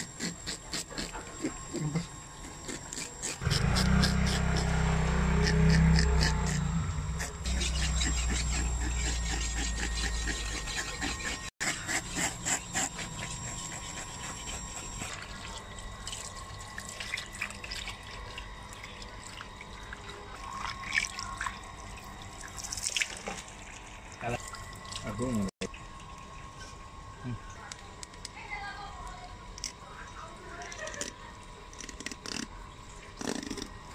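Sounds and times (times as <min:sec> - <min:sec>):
low steady hum: 0:00.0 - 0:33.9
water from hose splashing: 0:22.4 - 0:25.4.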